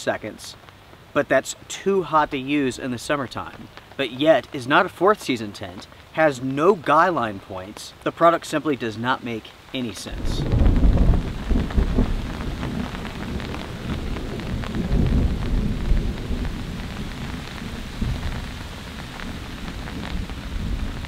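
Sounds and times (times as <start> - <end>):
heavy rain: 0.0 - 21.0
thunder rumbling: 10.1 - 21.0.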